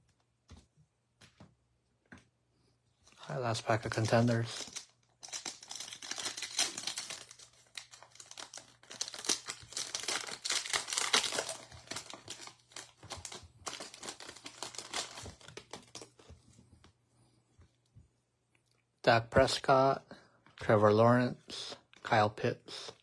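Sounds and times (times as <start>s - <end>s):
foil wrapper crinkling and tearing: 3.5s - 16.3s.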